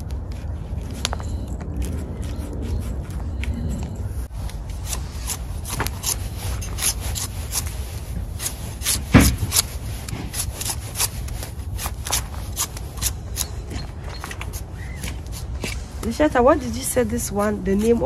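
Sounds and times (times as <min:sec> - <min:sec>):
knife scraping root skin: 0:04.4 - 0:18.0.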